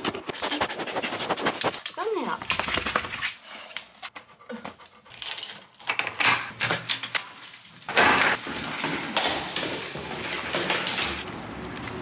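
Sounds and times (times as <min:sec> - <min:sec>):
keys rattling in lock: 0:05.1 - 0:09.0.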